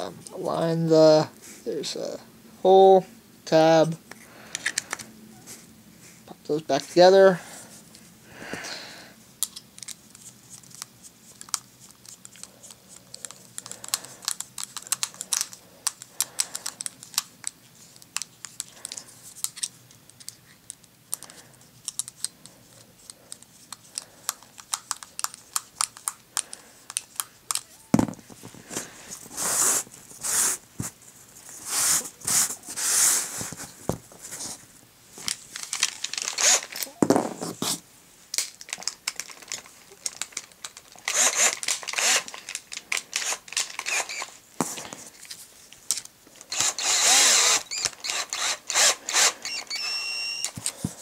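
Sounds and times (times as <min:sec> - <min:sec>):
plastic and metal parts clicking: 0:04.1 - 0:05.1, 0:09.4 - 0:22.4, 0:23.0 - 0:28.5, 0:35.2 - 0:37.0, 0:38.3 - 0:51.0
scraping on cardboard: 0:28.7 - 0:34.6.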